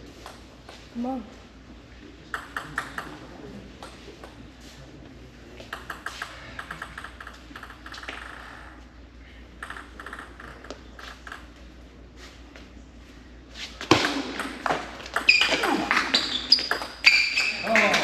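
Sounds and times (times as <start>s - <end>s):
ball hitting bat and table: 2.3s - 4.4s, 5.6s - 8.5s, 9.6s - 11.5s, 13.8s - 18.0s
table tennis ball bouncing: 2.3s - 4.4s, 5.6s - 8.7s, 9.6s - 11.5s, 13.9s - 18.0s.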